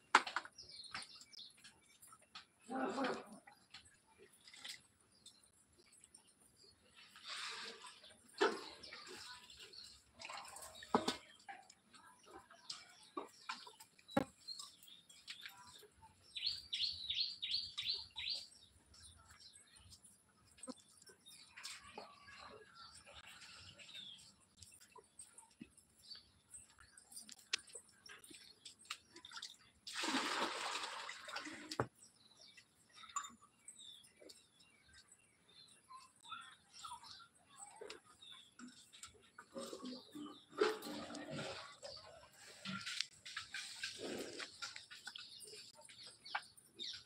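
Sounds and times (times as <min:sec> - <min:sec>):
bird chirping: 0:12.2 - 0:29.0
water splashing in bucket: 0:28.2 - 0:32.1.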